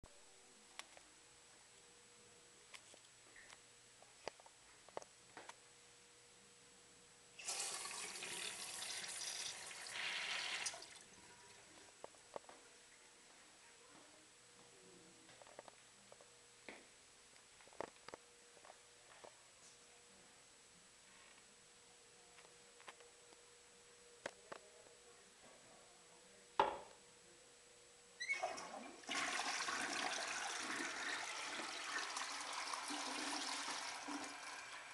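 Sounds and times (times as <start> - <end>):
urinal flushing water rush: 28.3 - 34.9.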